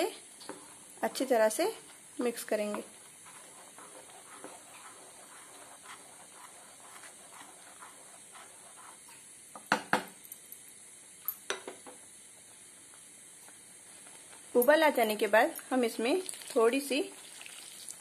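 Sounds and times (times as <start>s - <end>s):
spatula scraping pan: 2.6s - 9.1s.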